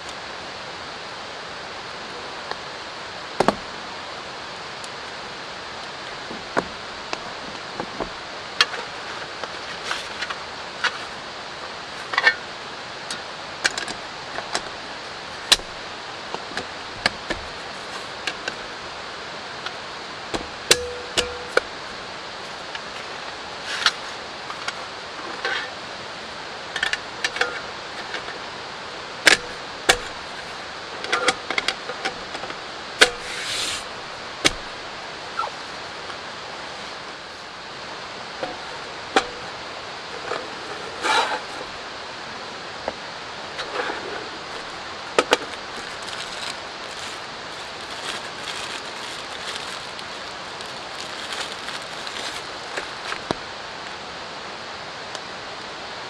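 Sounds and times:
light rain hissing: 0.0s - 56.0s.

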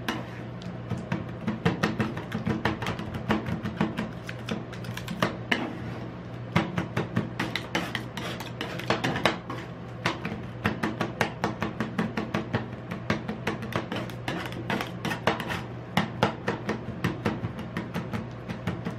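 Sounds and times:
metal spatulas chopping and scraping: 0.0s - 0.4s, 1.6s - 6.0s, 6.6s - 10.4s, 13.6s - 15.7s.

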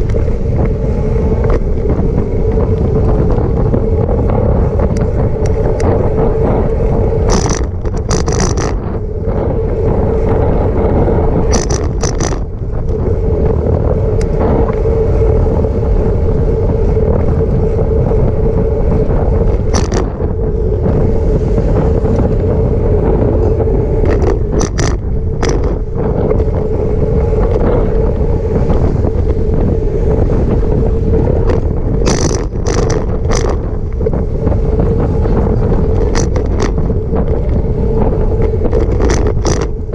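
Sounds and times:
steady hum: 0.0s - 39.9s
wind rushing over microphone: 0.0s - 39.9s
short rattling crackles: 7.3s - 9.0s, 11.5s - 12.9s, 19.6s - 20.2s, 24.0s - 26.5s, 31.4s - 34.4s, 35.8s - 37.6s, 38.6s - 39.9s.

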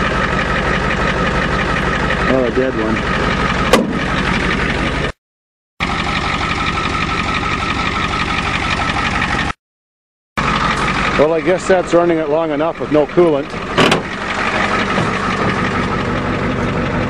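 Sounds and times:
diesel truck engine idling: 0.0s - 5.2s, 5.8s - 9.6s, 10.4s - 17.0s.

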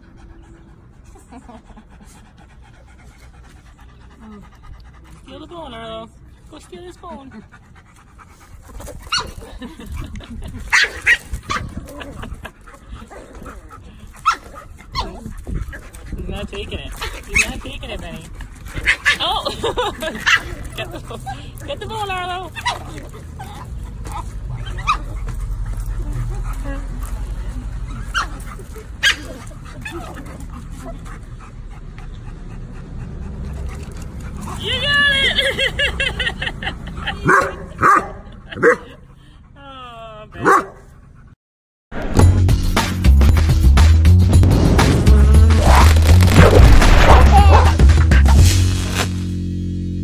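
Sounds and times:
dog yipping: 9.1s - 9.4s, 10.7s - 11.7s, 14.2s - 15.3s, 18.8s - 19.3s, 20.0s - 20.5s, 22.5s - 25.4s, 27.9s - 31.0s
dogs barking: 10.7s - 15.9s, 18.7s - 21.1s, 22.5s - 31.4s, 36.8s - 39.0s, 40.4s - 40.9s.

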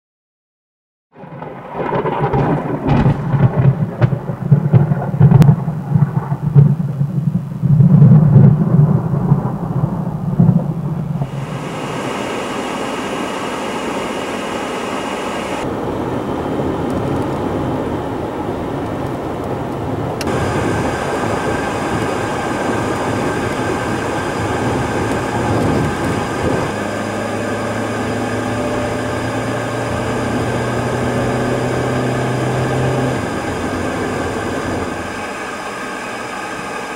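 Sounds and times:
thunder rumbling and cracking: 1.1s - 12.0s, 15.7s - 28.8s
car road and engine noise: 2.9s - 36.9s.

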